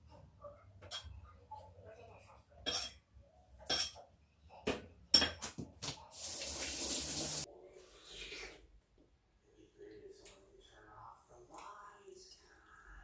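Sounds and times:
tap water running: 5.8s - 7.5s.

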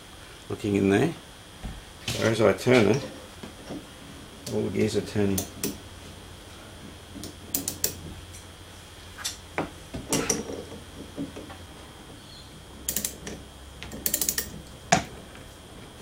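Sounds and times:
metallic clicks and knocks: 7.2s - 8.0s, 12.9s - 14.5s
meshing gears turning: 12.9s - 13.3s, 13.9s - 14.6s.

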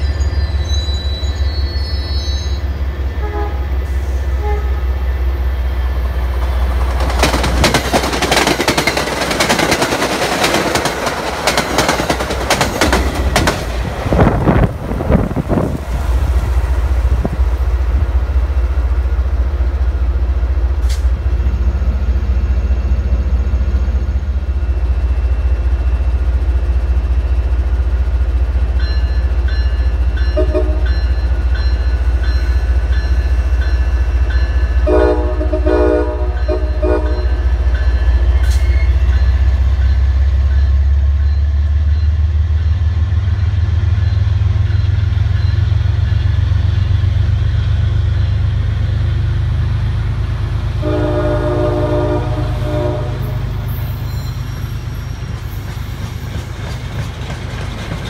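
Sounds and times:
diesel train rumbling: 0.0s - 58.0s
locomotive horn blasts: 3.2s - 5.1s, 30.3s - 31.0s, 34.8s - 37.4s, 50.8s - 53.6s.

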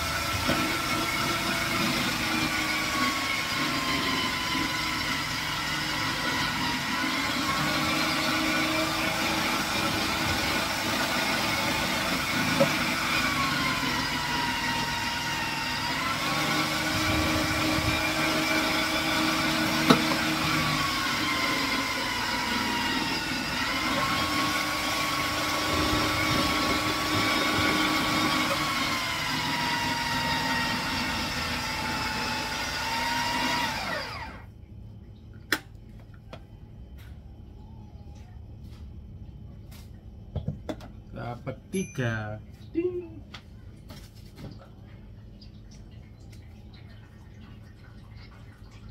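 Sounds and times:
food processor motor whine: 0.0s - 34.5s.

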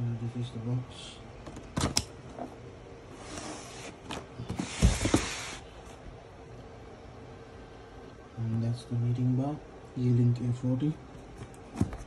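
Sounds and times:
cardboard scraping and rustling: 2.3s - 5.6s.

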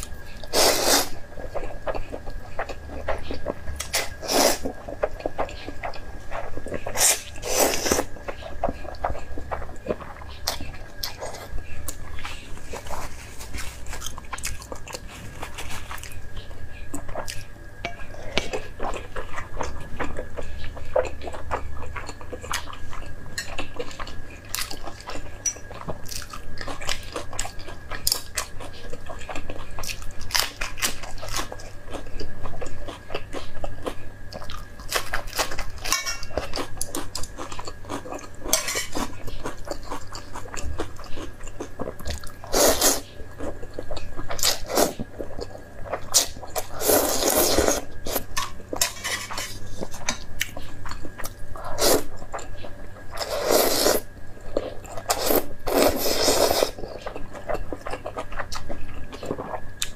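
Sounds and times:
slurping noodles: 42.5s - 43.0s, 46.2s - 48.2s, 53.2s - 54.1s, 55.1s - 56.8s
chewing and biting food: 54.4s - 59.9s.

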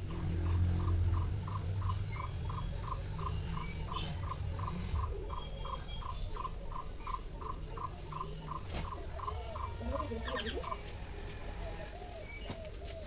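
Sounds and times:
low steady rumble: 0.0s - 8.1s.

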